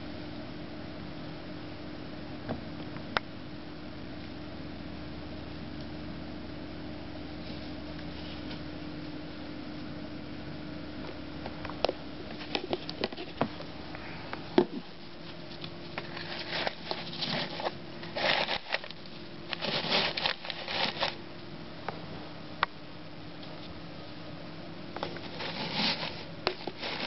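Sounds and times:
faint steady hum: 0.0 - 27.0
wood shavings rustling: 15.1 - 21.2, 25.0 - 27.0.

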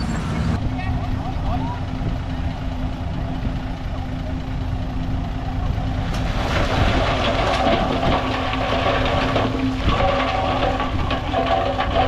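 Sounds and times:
diesel earthmoving machinery running: 0.0 - 12.0
rattling scraping noise: 6.1 - 12.0.

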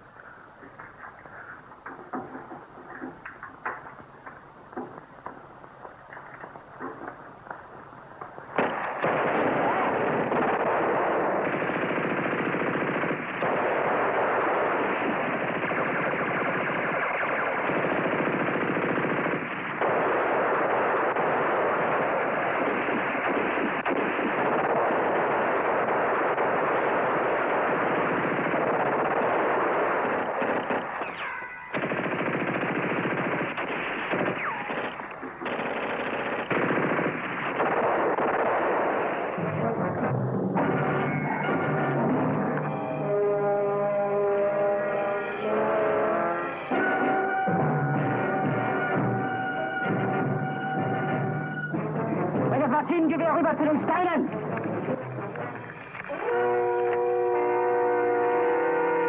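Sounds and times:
machine-gun bursts: 8.6 - 39.4.

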